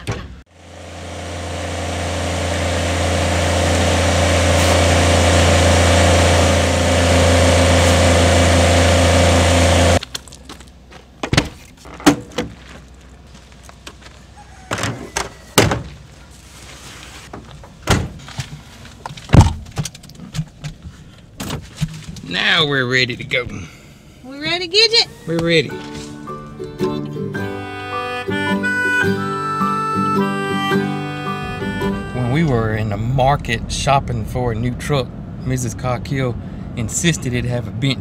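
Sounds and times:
tractor engine running: 0.5 - 10.9, 28.3 - 38.0
thunks of items loaded into truck: 10.0 - 22.3, 25.3 - 26.6.

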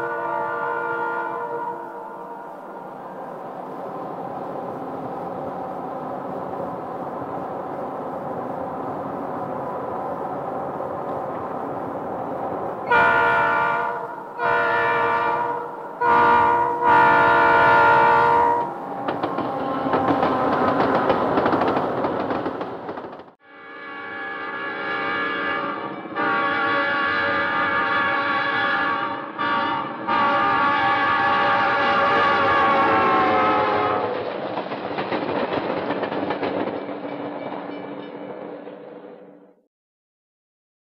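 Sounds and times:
locomotive horn blasts: 0.0 - 2.5, 12.8 - 19.0, 23.4 - 34.1
train cars rumbling by: 0.0 - 39.6
train wheels clattering over rails: 18.6 - 23.4, 33.7 - 39.0.

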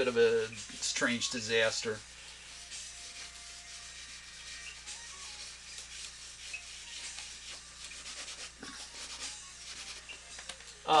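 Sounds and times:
pencil scratching on paper: 2.3 - 10.1.

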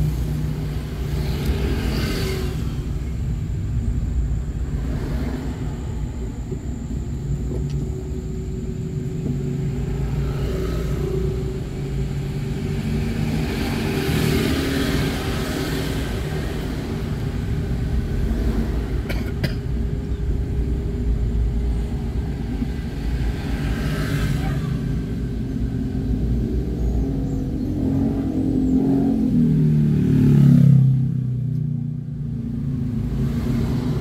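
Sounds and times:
motorcycle passing: 0.0 - 3.7, 9.6 - 19.0, 22.7 - 34.0
car engine and tyre rumble: 0.0 - 34.0.

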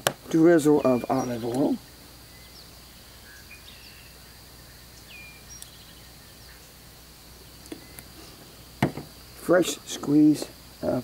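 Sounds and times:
high insect drone: 0.0 - 11.0
bird chirps: 0.3 - 8.7.

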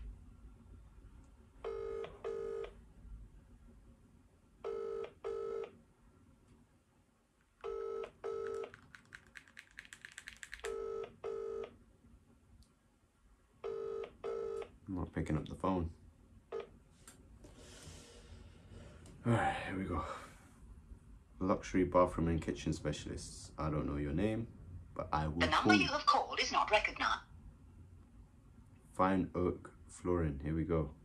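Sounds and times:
telephone ringback tone: 7.7 - 8.6.

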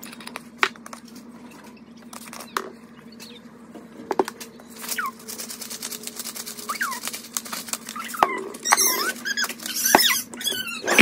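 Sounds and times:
spice shaker rattling: 4.8 - 8.0.

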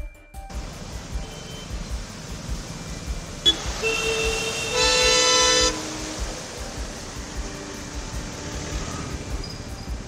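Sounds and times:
tyres splashing through water: 0.5 - 10.0
car horns honking: 1.0 - 2.3, 3.2 - 10.0.

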